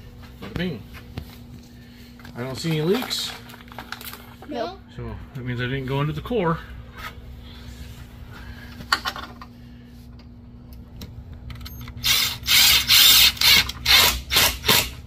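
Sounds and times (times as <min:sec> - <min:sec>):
cordless drill driving screw: 0:12.0 - 0:15.0.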